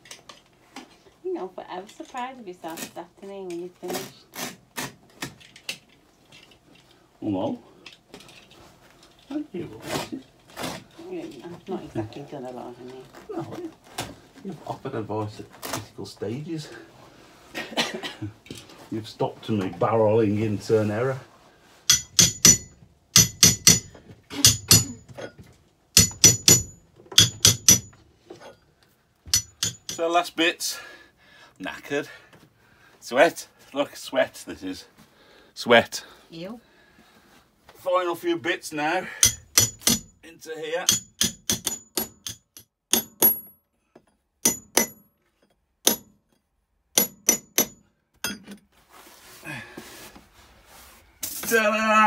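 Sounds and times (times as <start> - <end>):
hammer blows with metallic ring: 21.9 - 25.3, 26.0 - 28.6, 29.3 - 30.0, 39.1 - 40.2, 40.9 - 43.6, 44.4 - 45.1, 45.9 - 46.2, 47.0 - 48.5.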